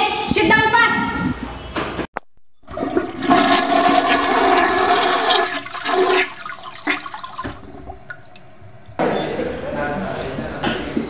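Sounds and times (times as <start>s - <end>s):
toilet flushing: 2.6s - 8.4s.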